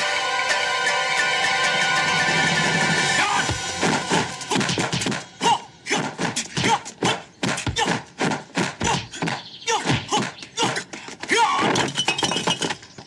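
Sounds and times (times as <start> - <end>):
fight punch and kick hits: 6.0 - 10.8.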